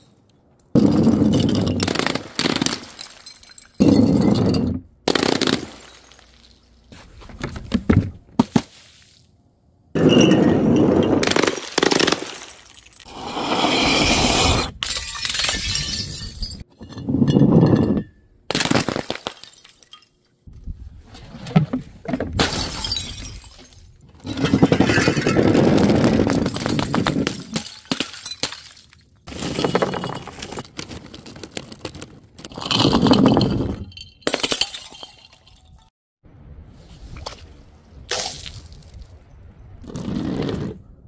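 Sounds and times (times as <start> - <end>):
glass jars smashing on paving: 0.8 - 6.9, 10.0 - 20.2, 22.3 - 35.9
shards and beads scattering: 1.0 - 4.6, 5.2 - 6.9, 10.0 - 13.2.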